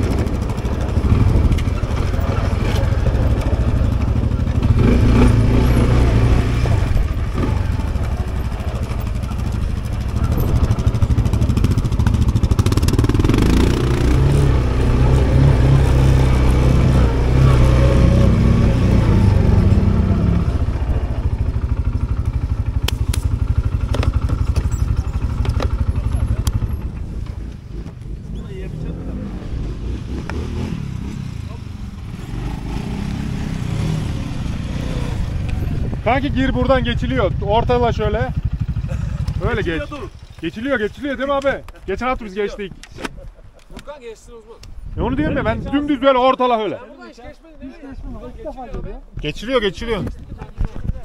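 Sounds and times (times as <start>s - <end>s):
atv engine running: 0.0s - 28.2s, 29.1s - 41.4s.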